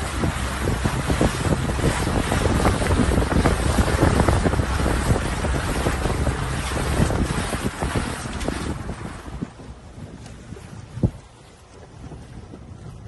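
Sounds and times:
water washing against boat: 0:00.0 - 0:13.0
wind buffeting microphone: 0:00.0 - 0:13.0.

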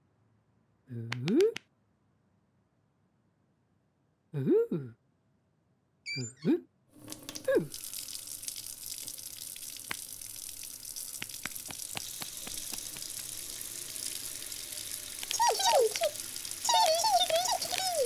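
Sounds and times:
small water splashes: 0:07.0 - 0:18.0
water running into sink: 0:07.0 - 0:18.0
tap turned on: 0:11.2 - 0:13.4.

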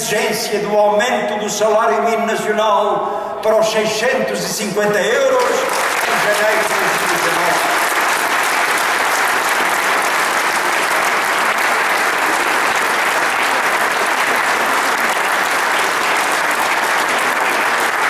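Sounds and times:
crowd applauding: 0:05.4 - 0:18.0.

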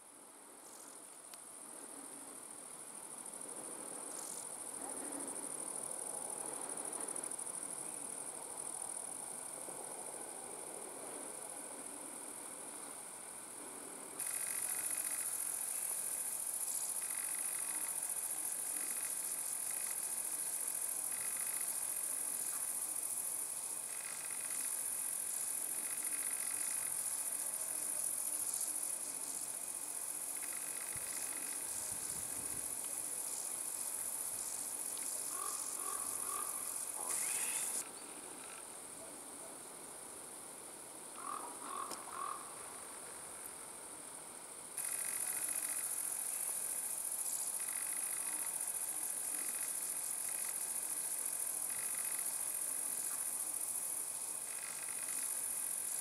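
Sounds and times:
insects chirring high buzz: 0:00.0 - 0:56.0
quick repeated insect notes: 0:14.2 - 0:38.6, 0:44.8 - 0:56.0.

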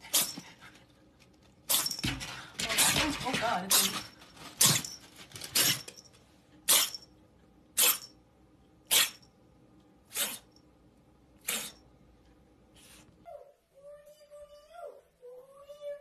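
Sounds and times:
kitten breathy bursts: 0:11.4 - 0:11.8.

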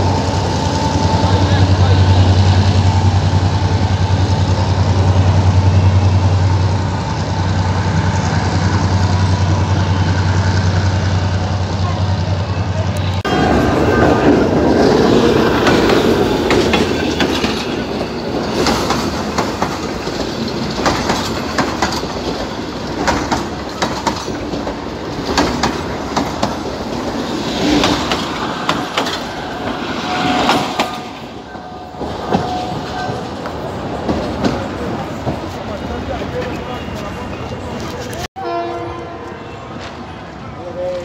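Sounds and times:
train wheels clacking over rail joints: 0:15.2 - 0:36.8.

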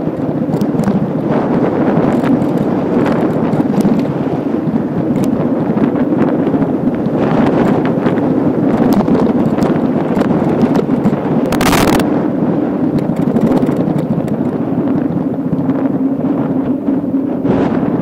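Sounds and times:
bicycle tyres rolling on asphalt: 0:00.0 - 0:18.0
wind rushing over microphone: 0:00.0 - 0:18.0
small clicks and rattles: 0:00.1 - 0:01.2, 0:01.9 - 0:04.4, 0:05.0 - 0:05.4, 0:07.0 - 0:07.9, 0:08.7 - 0:12.1, 0:12.9 - 0:14.6.

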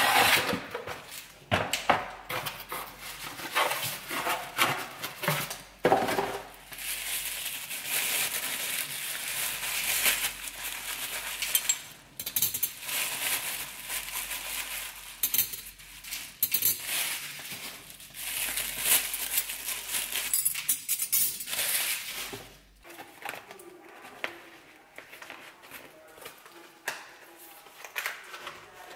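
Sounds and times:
packaging rustling and crinkling: 0:02.3 - 0:20.6, 0:21.4 - 0:28.9.

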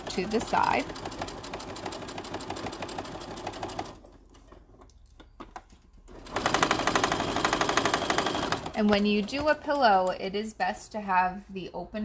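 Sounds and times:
sewing machine stitching: 0:00.0 - 0:04.8, 0:06.1 - 0:10.1.

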